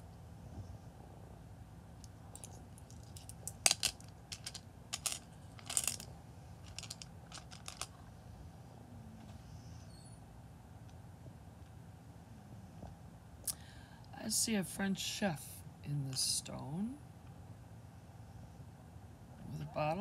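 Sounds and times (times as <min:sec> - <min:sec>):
stones clicking against glass: 0:02.3 - 0:06.0, 0:06.7 - 0:07.9.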